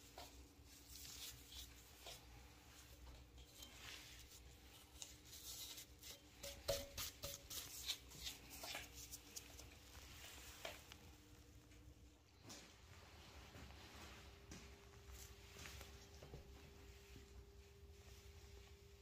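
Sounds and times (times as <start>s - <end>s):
gloved hand brushing metal chips: 0.7s - 10.1s.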